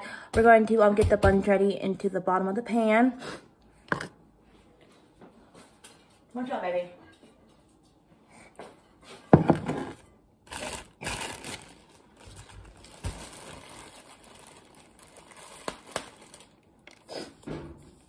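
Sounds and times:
plastic bag crinkling: 10.5 - 17.0.

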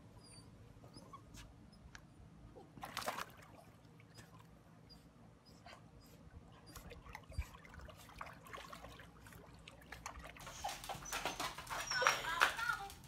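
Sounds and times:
dogs splashing in water: 2.8 - 4.5, 6.8 - 13.0.

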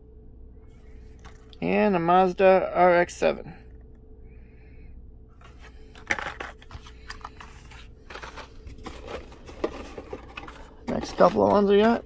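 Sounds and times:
card and plastic rustling: 5.4 - 12.0.

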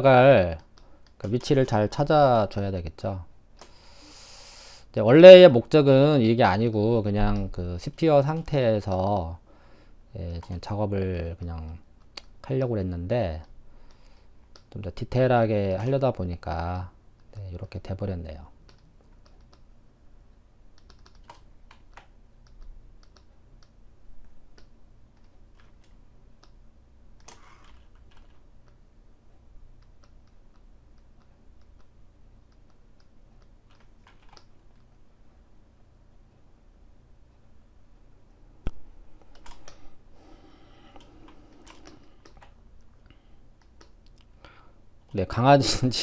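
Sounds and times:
computer keyboard keys clicking: 20.8 - 23.8, 32.5 - 34.9, 39.3 - 39.8, 40.9 - 42.6.

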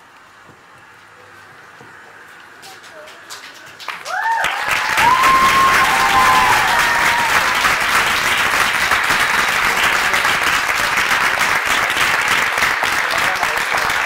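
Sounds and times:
audience applauding: 2.6 - 14.0
people cheering: 2.8 - 14.0.

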